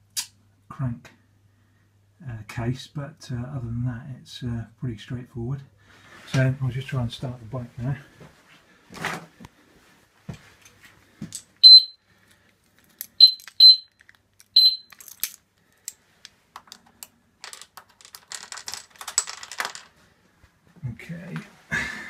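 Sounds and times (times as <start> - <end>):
short high-pitched electronic beeps: 11.6 - 12.0, 13.2 - 13.9, 14.6 - 14.9
keys jangling: 12.9 - 15.4.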